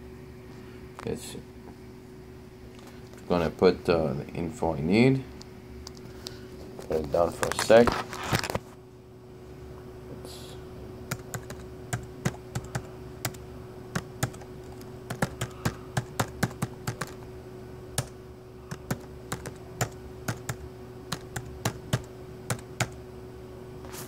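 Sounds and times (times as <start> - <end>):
faint steady hum: 0.0 - 24.0
keyboard typing: 11.1 - 17.2, 18.0 - 23.0.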